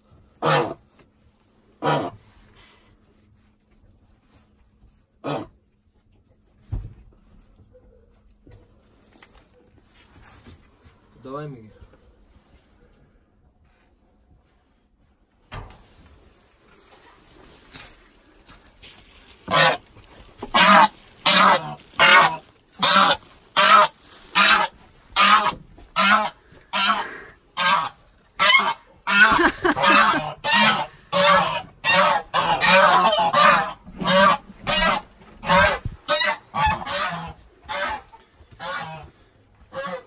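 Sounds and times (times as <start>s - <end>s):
goose honking: 0.4s - 0.8s, 1.8s - 2.2s, 19.4s - 40.0s.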